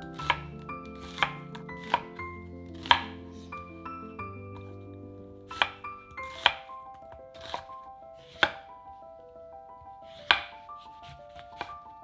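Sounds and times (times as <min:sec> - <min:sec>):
knife chopping on wooden board: 0:00.1 - 0:03.3, 0:05.5 - 0:08.7, 0:10.1 - 0:11.8.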